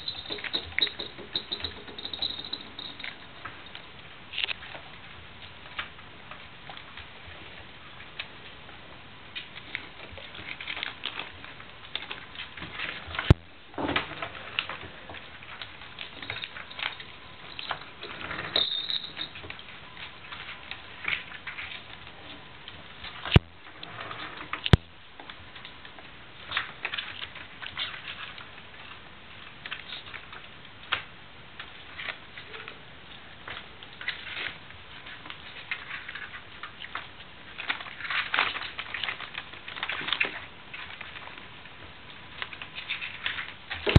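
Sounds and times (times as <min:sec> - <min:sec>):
ball rattling in plastic toy: 0:00.0 - 0:03.8, 0:16.1 - 0:19.4.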